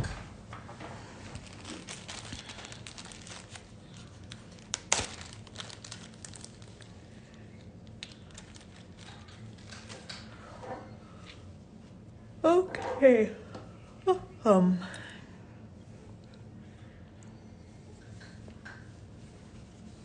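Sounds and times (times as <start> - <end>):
plastic bag crinkling: 1.2 - 10.1.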